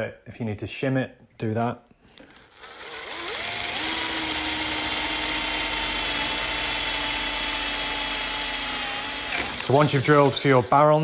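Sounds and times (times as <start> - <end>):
cordless drill boring into wood: 2.3 - 11.0.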